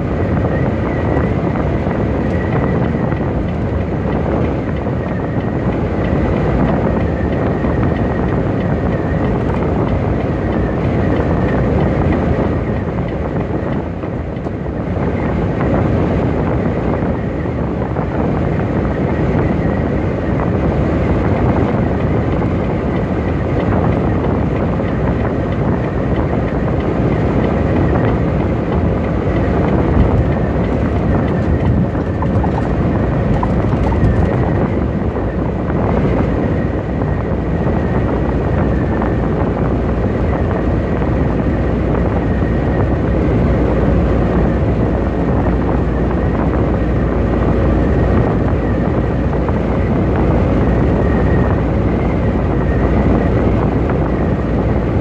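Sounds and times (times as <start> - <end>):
truck engine and road noise drone: 0.0 - 55.0.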